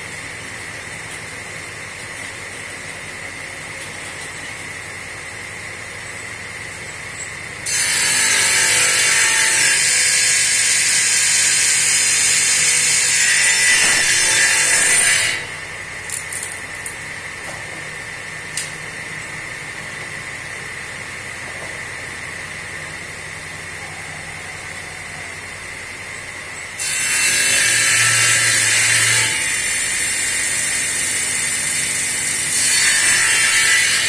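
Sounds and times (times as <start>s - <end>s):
table saw whining: 0.0s - 34.0s
saw blade cutting wood: 6.3s - 18.8s, 26.7s - 34.0s.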